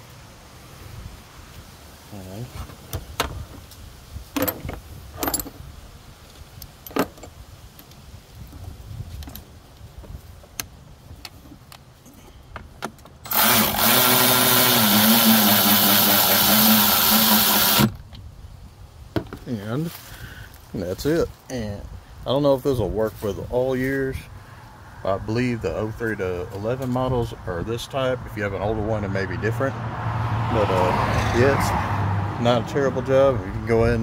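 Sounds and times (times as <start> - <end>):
electric ratchet running: 13.3 - 17.9.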